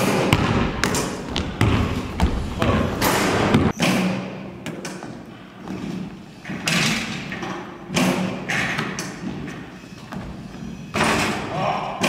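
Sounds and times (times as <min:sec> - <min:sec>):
basketballs thudding on gym floor: 0:00.0 - 0:03.8.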